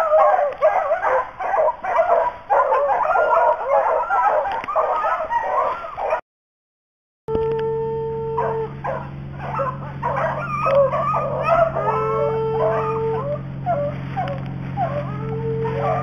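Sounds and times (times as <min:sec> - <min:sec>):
hounds barking: 0:00.0 - 0:06.2, 0:08.3 - 0:16.0
hounds howling: 0:00.0 - 0:06.2, 0:07.6 - 0:16.0
low hum: 0:07.3 - 0:16.0.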